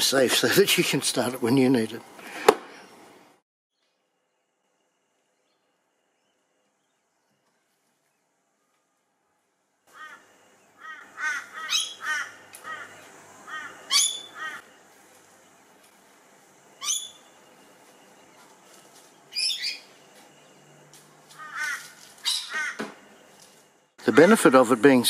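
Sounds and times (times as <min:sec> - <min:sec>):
birds making harsh calls: 0:09.9 - 0:14.7, 0:16.7 - 0:20.1, 0:21.2 - 0:23.1
sharp sweeping bird call: 0:09.9 - 0:14.7, 0:16.7 - 0:18.4.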